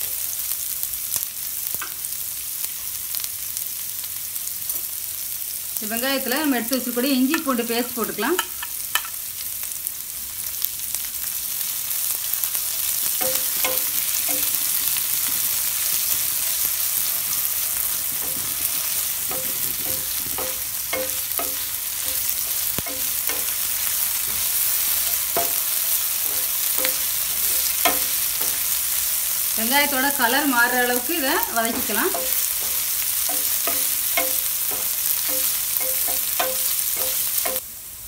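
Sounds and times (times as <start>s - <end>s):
onions sizzling in hot oil: 0.0s - 38.0s
spatula scraping and tapping pan: 8.3s - 9.2s, 13.2s - 15.9s, 16.6s - 28.8s, 29.8s - 37.6s.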